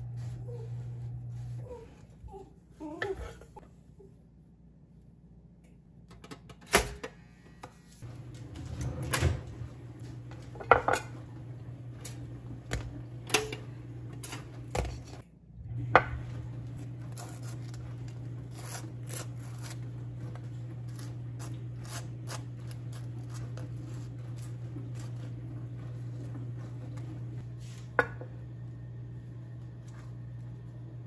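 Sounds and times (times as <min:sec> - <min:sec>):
low steady hum: 0:00.0 - 0:31.0
kitchen knocks and clatters: 0:08.1 - 0:11.3, 0:28.0 - 0:28.4
knife scraping butter on bagel: 0:20.8 - 0:25.4.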